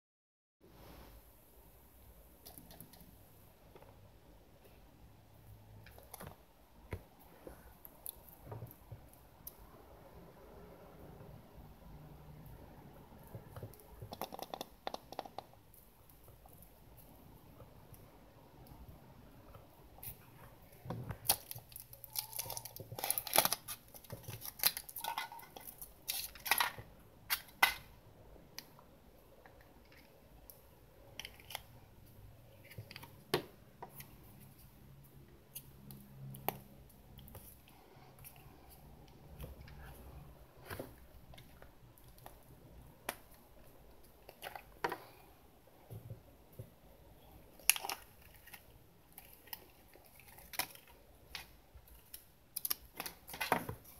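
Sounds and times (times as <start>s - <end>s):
foil wrapper crinkling and tearing: 21.2s - 26.7s
plastic wrapping crinkle: 21.2s - 27.6s.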